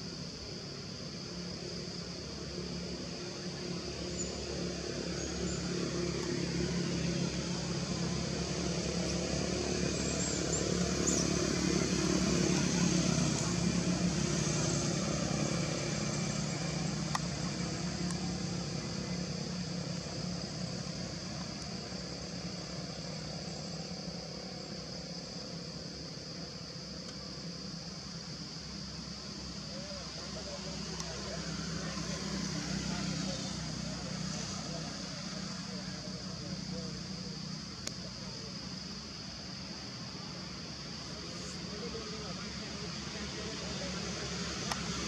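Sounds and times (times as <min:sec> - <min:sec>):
steady high hiss: 0:00.0 - 0:45.0
motor vehicle engine running: 0:05.3 - 0:24.7.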